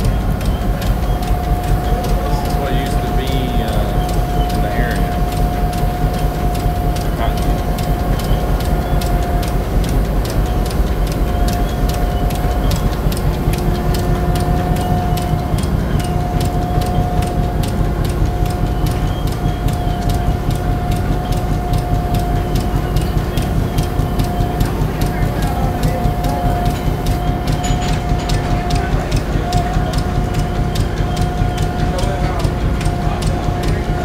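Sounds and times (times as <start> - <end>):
machinery humming and rumbling: 0.0 - 34.0
regular machine clicking: 0.0 - 34.0.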